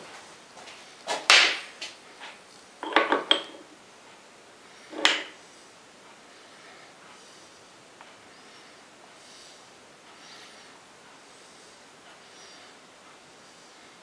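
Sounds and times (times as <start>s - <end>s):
metal tools clanking: 2.8s - 3.7s.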